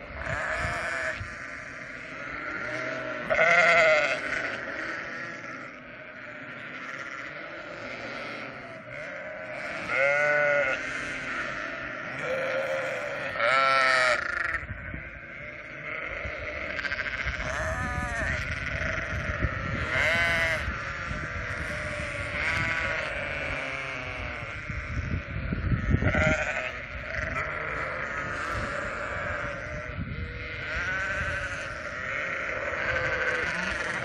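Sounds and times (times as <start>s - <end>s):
flock of sheep calling: 0.0s - 34.0s
sheep bleating: 0.0s - 34.0s.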